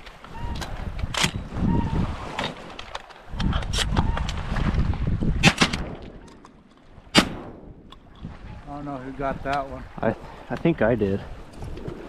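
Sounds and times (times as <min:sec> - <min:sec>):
shotguns firing: 0:07.1 - 0:07.9.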